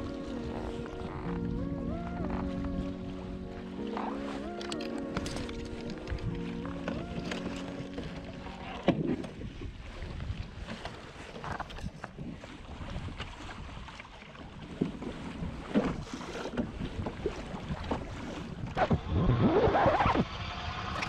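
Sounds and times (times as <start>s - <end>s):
water lapping at hull: 0.0s - 21.0s
fishing gear knocks and clicks: 4.0s - 8.3s
wind buffeting microphone: 5.3s - 13.9s.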